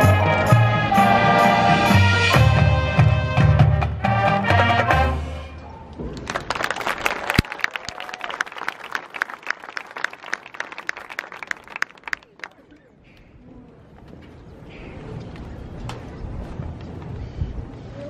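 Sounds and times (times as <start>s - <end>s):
marching band brass chords: 0.0s - 5.6s
audience applause: 6.1s - 12.8s.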